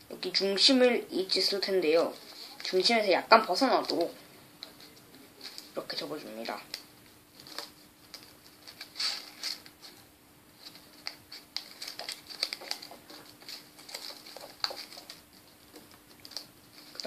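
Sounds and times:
paper rustling and crinkling: 3.6 - 10.0, 10.6 - 17.0.

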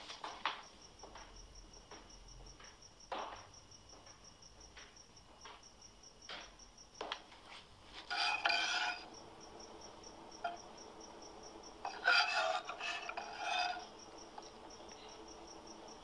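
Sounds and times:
cricket chirping: 0.0 - 16.0
metal utensil scraping in pot: 8.0 - 9.1, 11.8 - 14.9.

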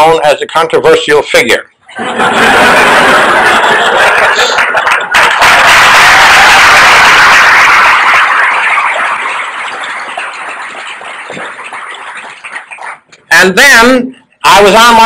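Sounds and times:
audience applauding: 2.0 - 13.2.

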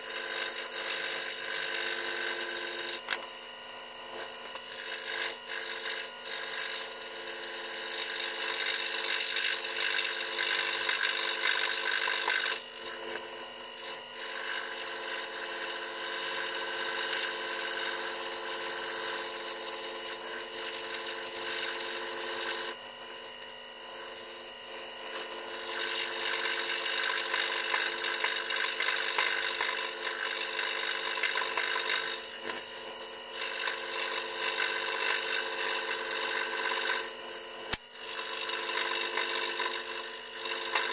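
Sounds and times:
scroll saw cutting wood: 0.0 - 40.9.

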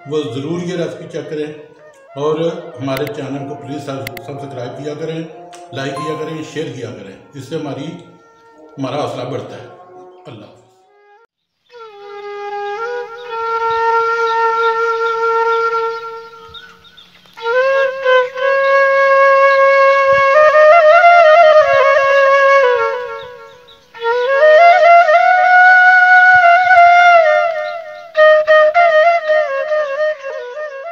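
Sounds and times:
sliding melody of held notes: 2.2 - 10.3.

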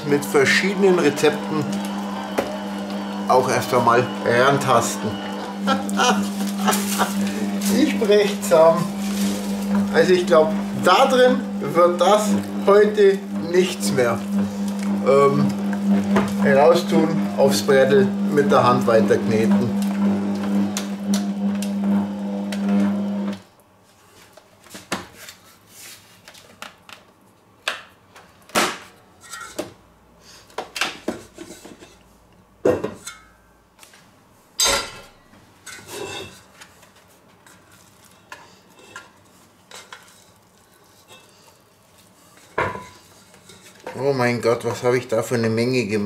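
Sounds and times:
stand mixer motor hum: 0.0 - 23.4.

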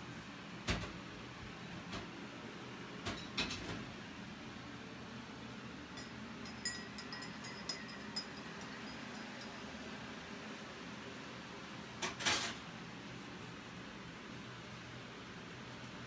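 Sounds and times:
kitchen utensils knocking: 6.0 - 9.6
light utensil clinks: 6.0 - 9.7.

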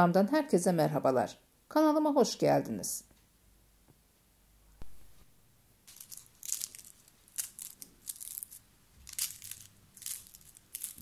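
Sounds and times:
knife crunching through pastry: 5.9 - 11.0.

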